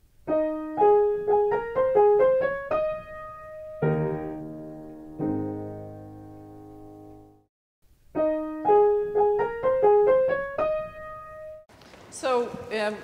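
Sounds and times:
piano music: 0.2 - 7.5, 8.1 - 11.7.

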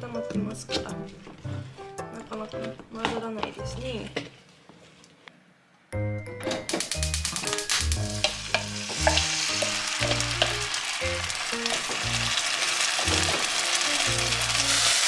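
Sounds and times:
background music: 0.0 - 4.2, 5.9 - 15.0
batter sizzling in a pan: 6.8 - 15.0.

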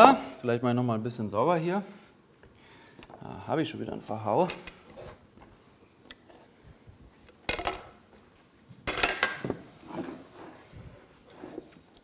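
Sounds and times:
dishes and cutlery clattering: 8.8 - 10.4.

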